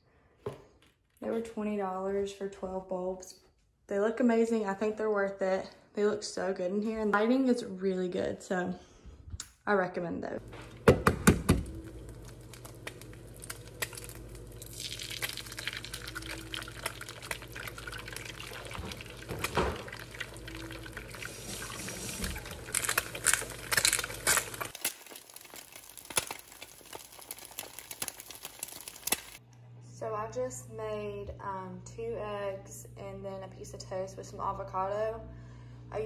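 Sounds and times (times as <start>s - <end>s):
eggs sizzling in frying pan: 10.4s - 29.4s.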